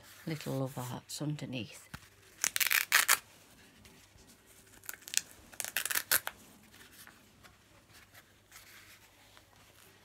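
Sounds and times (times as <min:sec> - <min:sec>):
wrapping crumpled and crackling: 0:02.0 - 0:07.2.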